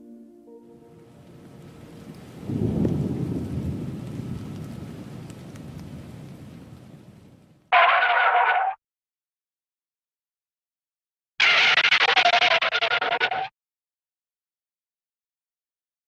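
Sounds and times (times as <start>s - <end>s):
harsh noise burst: 11.4s - 13.5s.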